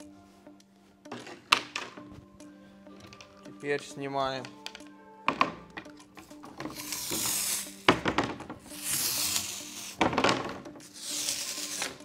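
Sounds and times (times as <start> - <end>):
faint background music: 0.0 - 12.0
climbing skin peeling with tearing hiss: 6.7 - 7.9, 8.7 - 10.0, 10.9 - 12.0.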